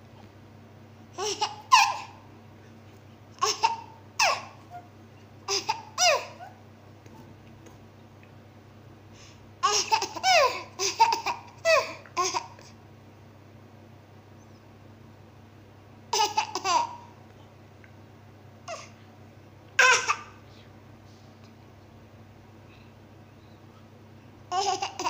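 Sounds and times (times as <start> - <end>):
baby laughing and squealing: 1.2 - 2.2, 3.4 - 4.9, 5.5 - 6.6, 9.6 - 12.5, 19.8 - 20.3, 24.5 - 25.0.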